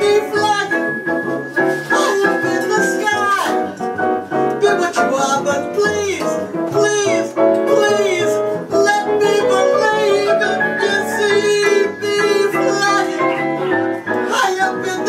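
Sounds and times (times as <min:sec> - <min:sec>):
acoustic piano: 0:00.0 - 0:15.0
upright bass: 0:00.0 - 0:15.0
woman singing jazz: 0:08.7 - 0:13.7.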